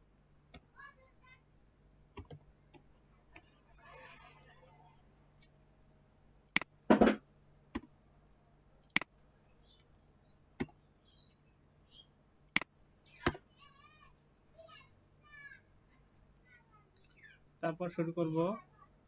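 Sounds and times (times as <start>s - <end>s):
keyboard and mouse clicks: 2.1s - 3.5s, 6.5s - 6.7s, 8.9s - 9.1s, 10.6s - 10.8s, 12.5s - 13.4s.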